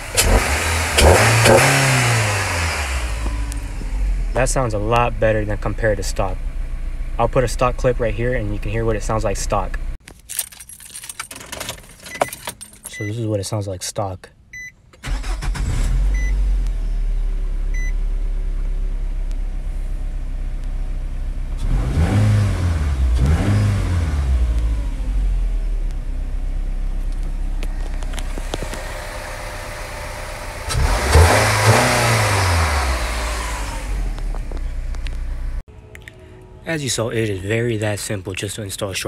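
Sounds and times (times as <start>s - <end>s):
car engine idling and revving: 0.0s - 10.0s, 15.0s - 35.7s.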